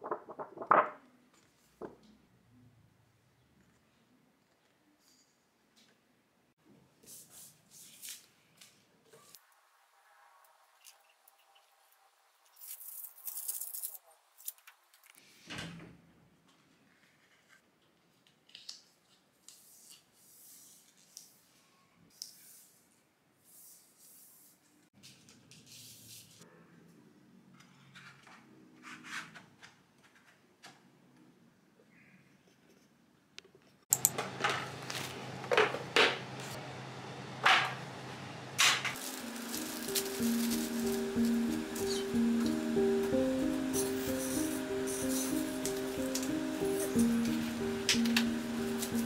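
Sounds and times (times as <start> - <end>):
rustling and scraping: 0.0 - 1.9.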